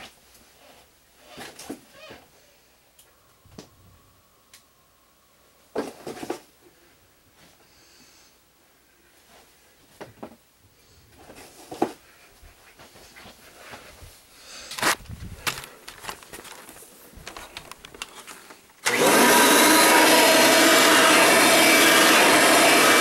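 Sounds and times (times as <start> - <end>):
handling rustles and knocks: 5.7 - 6.6, 11.1 - 18.8
camera picked up rustle and bump: 14.7 - 18.8.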